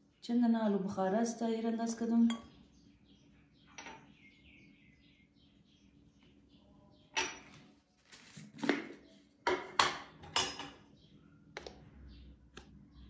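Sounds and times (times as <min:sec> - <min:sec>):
dishes and utensils clinking: 0:09.5 - 0:10.9.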